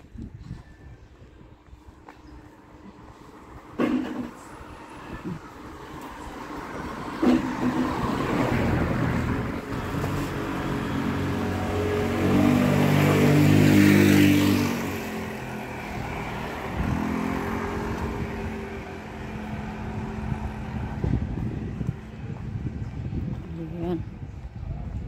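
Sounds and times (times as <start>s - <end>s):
motor scooter passing: 3.0s - 23.2s
weaker passing vehicle engine: 3.2s - 23.2s.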